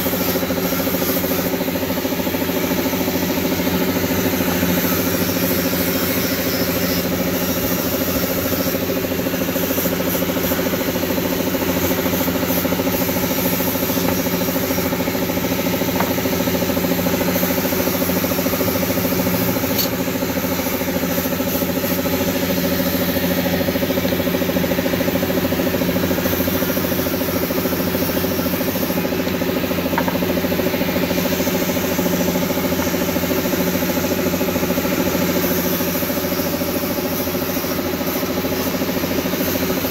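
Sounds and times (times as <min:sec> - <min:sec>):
machine droning: 0:00.0 - 0:39.9.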